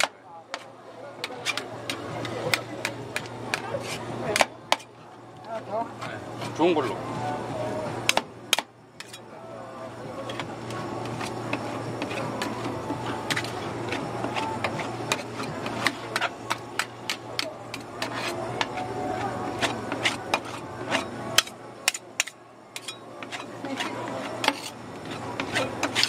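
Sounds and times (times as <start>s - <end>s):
metal scraper scraping steel pan: 0.0s - 4.9s, 9.0s - 9.2s, 10.3s - 26.0s.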